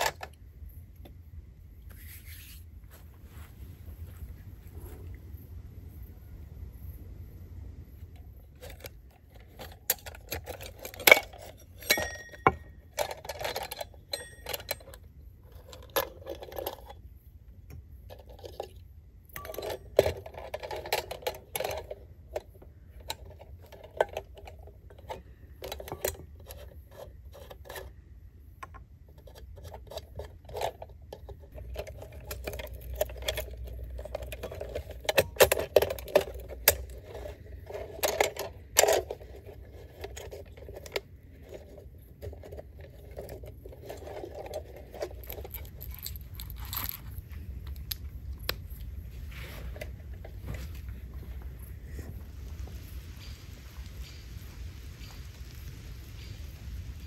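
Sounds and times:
metal and glass clinks and scrapes: 0:08.4 - 0:17.1, 0:18.0 - 0:22.1, 0:29.2 - 0:52.2
ringing metallic clinks: 0:11.8 - 0:12.9, 0:14.1 - 0:15.0.

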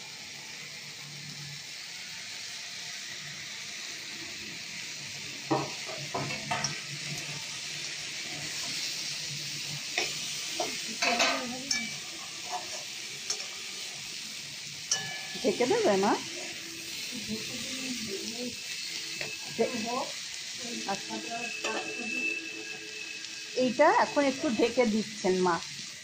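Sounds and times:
vegetables sizzling in oil: 0:00.0 - 0:26.0
metal spatula scraping pan: 0:10.0 - 0:13.6, 0:14.9 - 0:17.1, 0:20.9 - 0:23.1.

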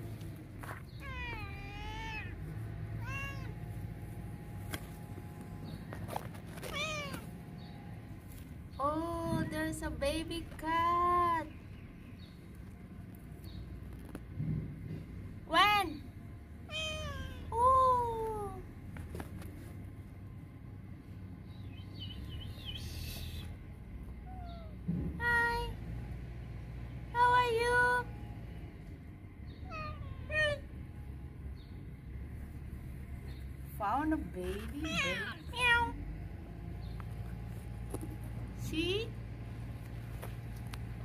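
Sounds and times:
cat meowing: 0:01.0 - 0:03.6, 0:06.6 - 0:07.3, 0:16.7 - 0:17.5, 0:29.6 - 0:30.6, 0:34.6 - 0:36.0.

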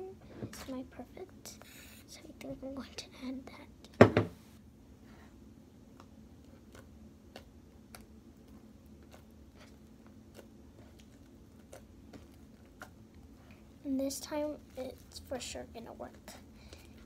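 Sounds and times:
loud knock: 0:04.0 - 0:04.4
hands kneading sticky slime: 0:05.3 - 0:17.0.

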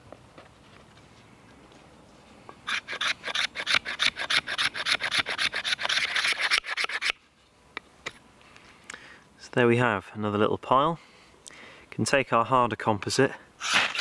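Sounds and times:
knife scraping wood shavings: 0:02.7 - 0:07.2, 0:13.6 - 0:14.0.

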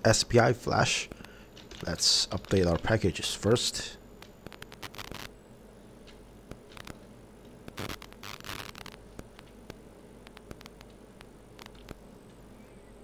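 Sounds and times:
steady low hum: 0:00.0 - 0:13.0
small sharp clicks: 0:04.2 - 0:05.3, 0:06.0 - 0:12.4.

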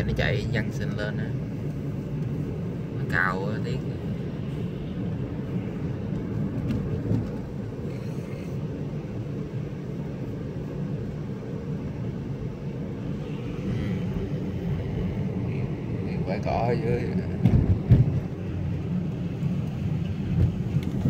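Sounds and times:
tyres and engine rumbling: 0:00.0 - 0:21.0
car bump: 0:17.4 - 0:18.3.

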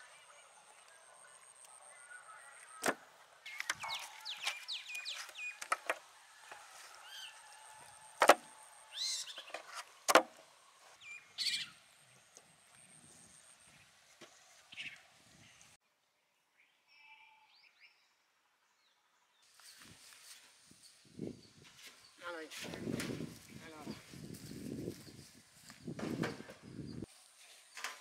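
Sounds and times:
birds chirping: 0:00.0 - 0:15.8.

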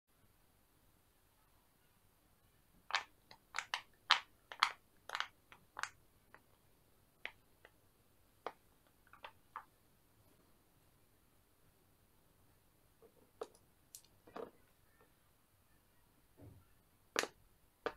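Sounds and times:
pop-it toy pops and clicks: 0:02.9 - 0:06.4, 0:17.1 - 0:17.9.

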